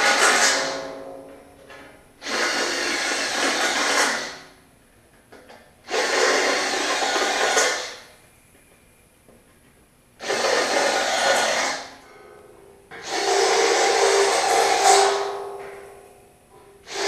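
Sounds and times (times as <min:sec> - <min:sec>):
power drill drilling into sheet steel: 0:00.0 - 0:00.6, 0:02.2 - 0:04.5, 0:05.9 - 0:08.0, 0:10.2 - 0:11.9, 0:13.0 - 0:15.2.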